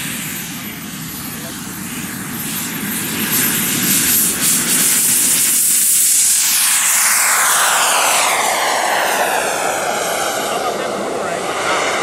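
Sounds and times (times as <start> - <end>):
model jet turbine rushing hiss: 0.0 - 12.0.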